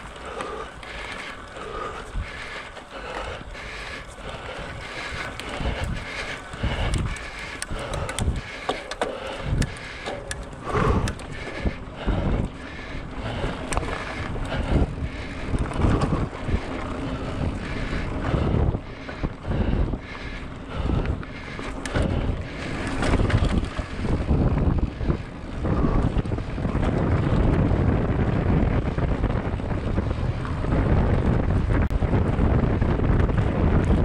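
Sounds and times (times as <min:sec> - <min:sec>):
bicycle clicks and rattles: 0:00.0 - 0:34.0
wind buffeting microphone: 0:00.0 - 0:34.0.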